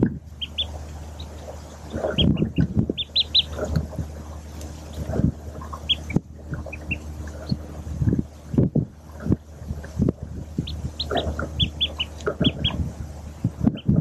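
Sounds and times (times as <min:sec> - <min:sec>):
ducklings peeping: 0:00.0 - 0:14.0.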